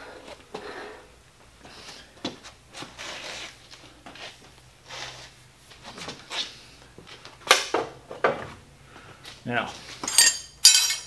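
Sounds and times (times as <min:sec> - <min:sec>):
metal tools scraping and clicking: 0:10.0 - 0:11.0
sharp metallic clink: 0:10.1 - 0:11.0.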